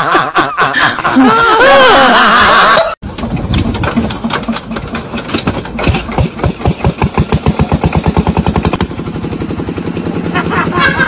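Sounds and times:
small engine starting and running: 3.1s - 11.0s.

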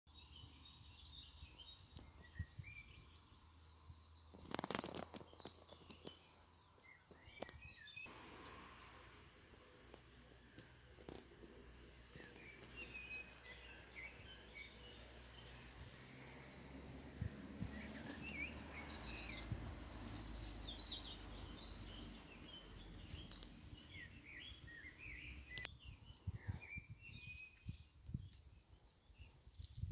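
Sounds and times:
faint birdsong: 0.1s - 29.9s
songbird chirping and whistling: 20.3s - 27.9s.

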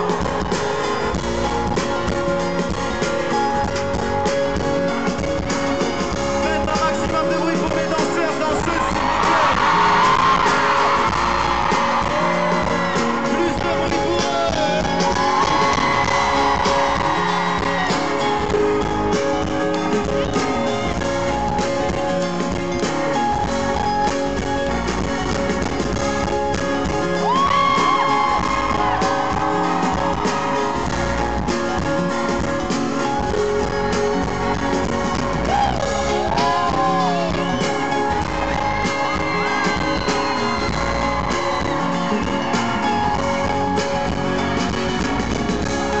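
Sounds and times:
fans screaming and whooping: 0.0s - 5.4s, 6.0s - 46.0s
live pop band with guitar: 0.0s - 46.0s.

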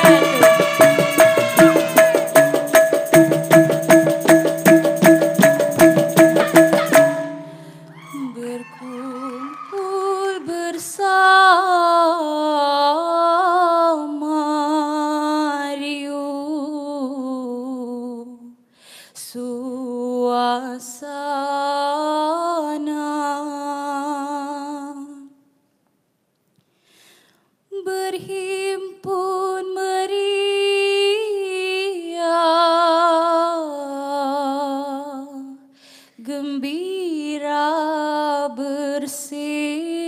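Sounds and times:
group voices singing: 0.0s - 2.3s
woman singing solo: 0.0s - 2.3s, 6.5s - 13.1s
frame drums rhythm: 0.0s - 7.9s.

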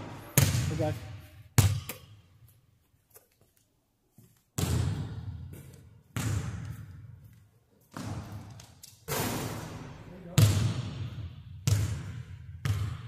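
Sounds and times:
basketball bouncing on hardwood floor: 0.0s - 0.7s, 1.6s - 2.2s, 4.6s - 7.2s, 7.9s - 13.0s.

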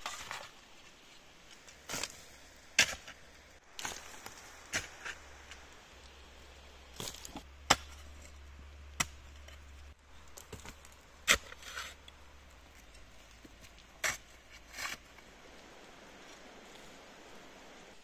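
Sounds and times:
dirt falling: 1.6s - 15.7s
shovel scraping: 1.8s - 3.2s, 3.8s - 5.6s, 10.4s - 12.1s, 13.9s - 15.1s
shovel striking stony soil: 1.8s - 5.6s, 7.0s - 8.4s, 9.0s - 9.6s, 10.4s - 12.0s, 13.9s - 15.0s.

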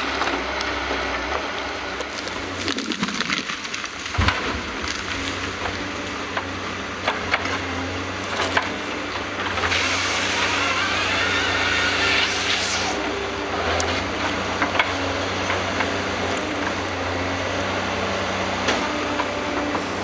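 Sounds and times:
diesel engine running: 0.0s - 20.0s
wood cracking and snapping: 1.9s - 7.6s.

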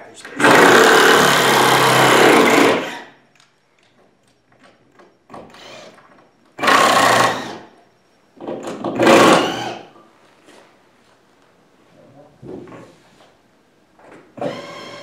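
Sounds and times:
cordless drill motor: 0.4s - 3.2s, 5.4s - 7.7s, 9.0s - 9.9s, 14.4s - 15.0s.

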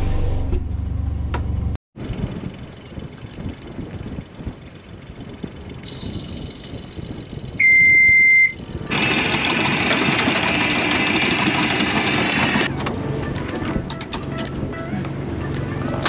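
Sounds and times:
loud steady running noise: 0.0s - 16.0s
long electronic beep: 7.6s - 8.6s.

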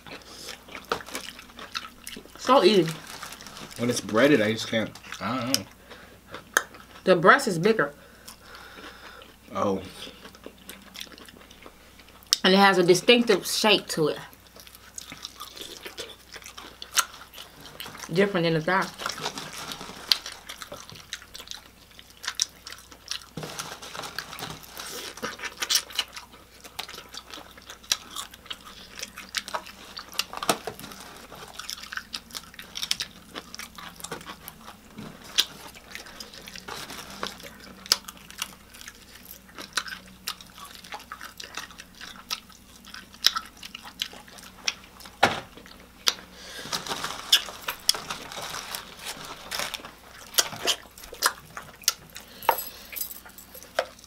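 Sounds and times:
chewing and biting: 0.0s - 4.1s, 10.0s - 12.4s, 14.3s - 18.2s, 18.9s - 54.0s
paper box rustling: 23.4s - 25.2s, 36.4s - 37.5s, 46.6s - 50.0s.

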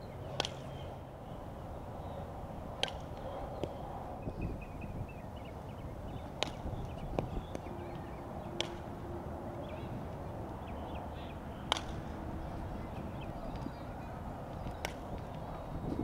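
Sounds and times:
bat hitting ball: 0.4s - 0.7s, 2.8s - 3.8s, 6.1s - 7.7s, 8.5s - 9.0s, 11.6s - 12.2s, 14.6s - 15.4s.

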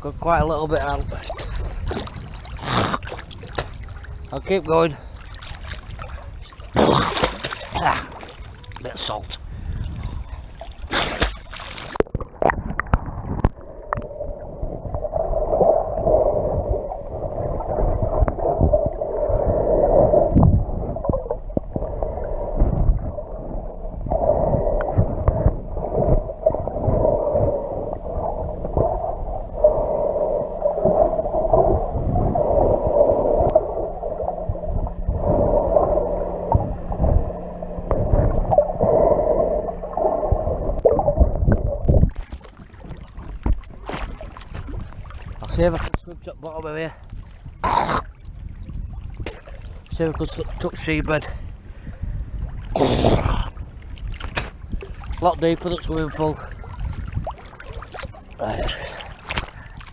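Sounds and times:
muffled underwater drone: 0.0s - 59.9s
water sloshing: 0.9s - 52.8s, 53.5s - 59.9s.

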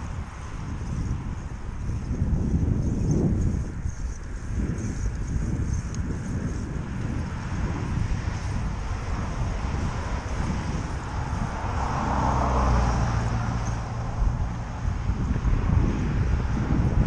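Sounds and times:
wind rumbling on microphone: 0.0s - 17.0s
car passing: 6.2s - 17.0s.

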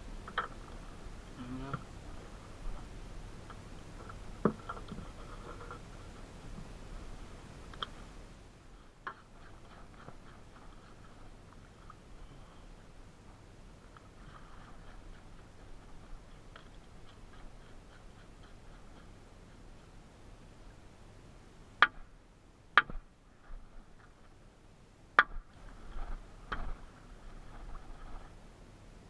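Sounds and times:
sharp knocks: 22.8s - 23.1s.

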